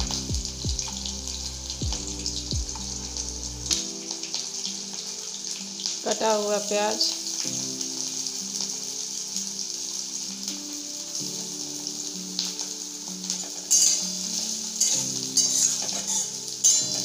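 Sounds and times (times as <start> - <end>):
onion sizzling in hot oil: 0.0 - 17.0
spatula scraping a pan: 13.4 - 17.0.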